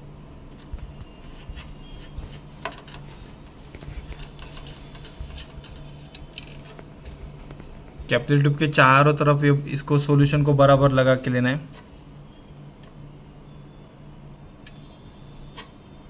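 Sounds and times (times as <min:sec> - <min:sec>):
steady low hum: 0:00.0 - 0:16.0
epoxy scraping and clicks: 0:00.5 - 0:08.0.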